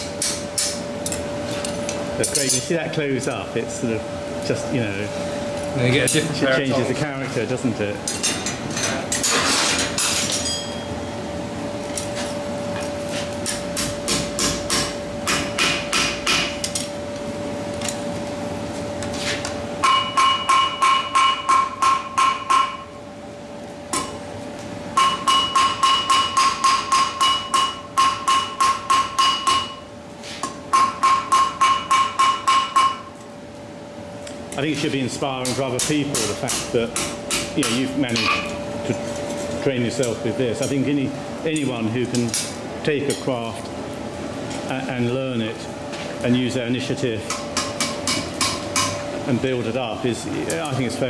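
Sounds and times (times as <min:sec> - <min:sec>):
hammer striking steel on anvil: 0:13.4 - 0:16.8, 0:19.8 - 0:22.9, 0:25.0 - 0:29.8, 0:30.4 - 0:33.1, 0:47.3 - 0:49.0.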